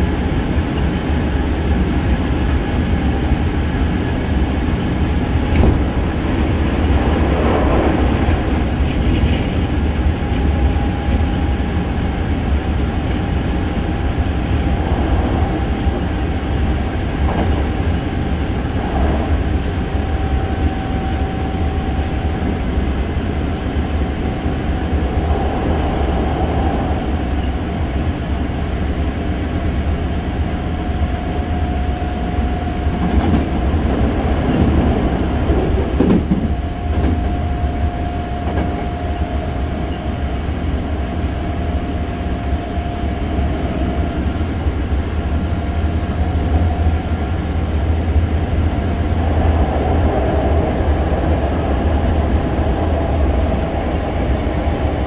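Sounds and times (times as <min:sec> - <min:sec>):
electric train rumble inside car: 0:00.0 - 0:55.0
rail-joint click: 0:32.9 - 0:38.9.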